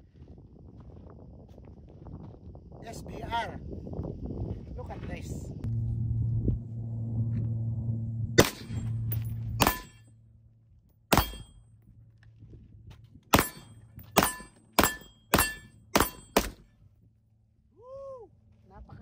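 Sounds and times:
steady low hum: 0.0 - 19.0
suppressed rifle shots: 8.4 - 8.8.

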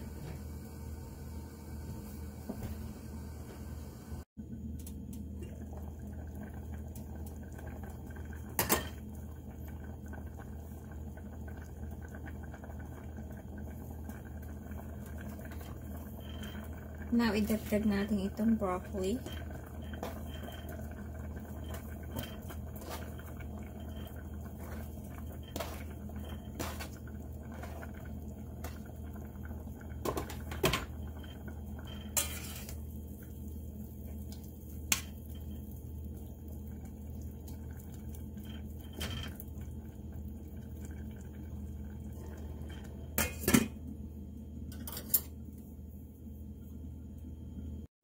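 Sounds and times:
steady low hum: 0.0 - 47.9
metal spoon scraping saucepan: 32.1 - 32.8.

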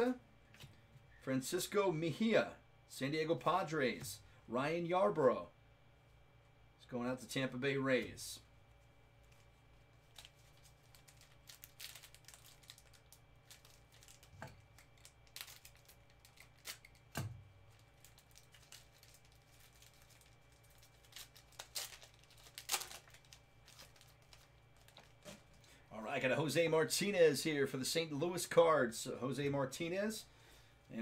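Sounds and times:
plastic wrapper tearing and crinkling: 9.2 - 25.6.

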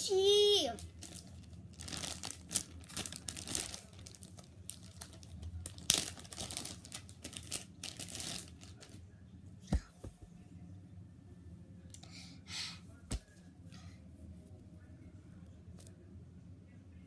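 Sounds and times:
plastic bag crinkling: 0.8 - 8.9.

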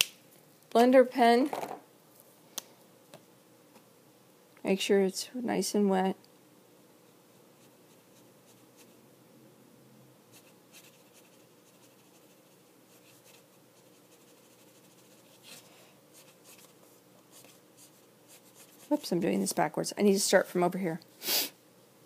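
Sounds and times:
marker nib scratching on paper: 10.3 - 19.6.

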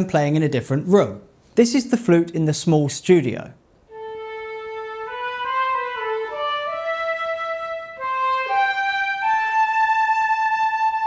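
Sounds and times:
solo flute melody: 3.9 - 11.0.

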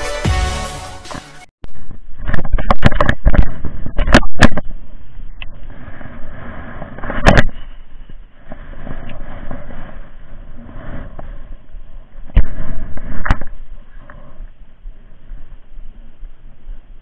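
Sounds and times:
sleeve brushing microphone: 5.6 - 14.4.

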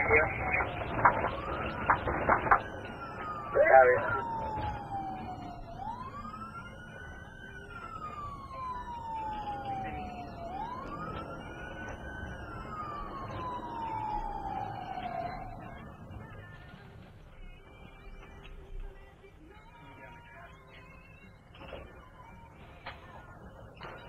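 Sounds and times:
police siren wailing: 0.0 - 16.8
road noise: 0.0 - 24.0.

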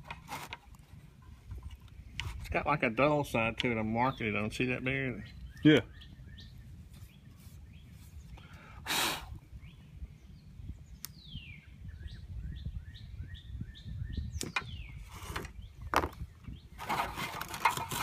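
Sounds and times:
handling noises: 0.0 - 2.6, 14.4 - 18.0
bird chirping: 3.8 - 8.7, 9.5 - 16.8.

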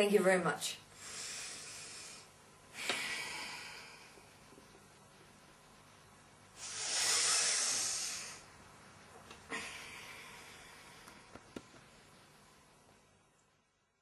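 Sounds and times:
person breathing deeply: 1.0 - 4.4, 6.6 - 8.5, 9.5 - 11.3.

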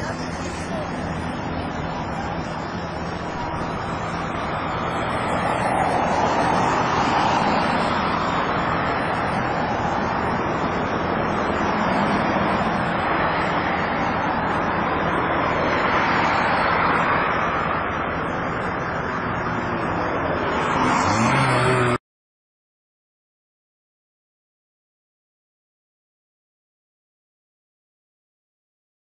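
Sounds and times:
rushing vehicle noise: 0.0 - 22.0.

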